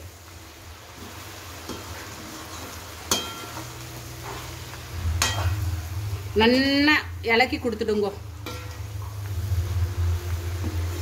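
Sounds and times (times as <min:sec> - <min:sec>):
spoon stirring pickle frying in oil: 0:00.0 - 0:11.0
spoon clacking against pan: 0:01.6 - 0:03.8, 0:08.4 - 0:09.1
low steady hum: 0:04.8 - 0:11.0.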